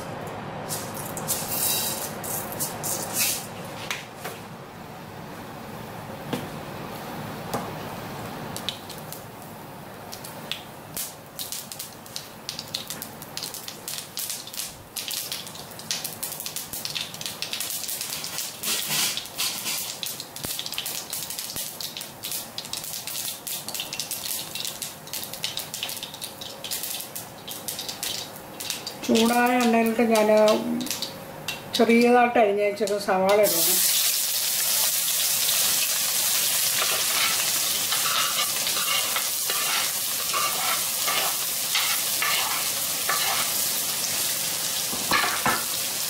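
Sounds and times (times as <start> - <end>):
seeds popping in hot oil: 10.1 - 32.1, 32.8 - 43.7.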